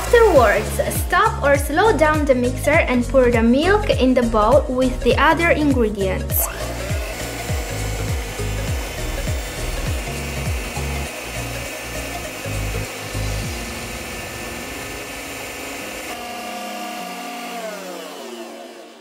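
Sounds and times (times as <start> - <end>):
stand mixer whirring: 0.0 - 1.0, 6.4 - 19.0.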